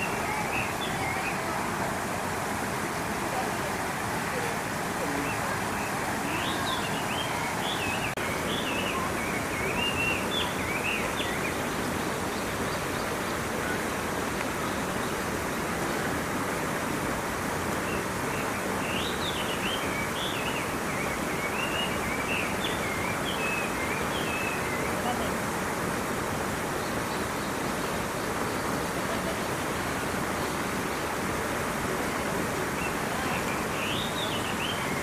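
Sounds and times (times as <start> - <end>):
running water: 0.0 - 35.0.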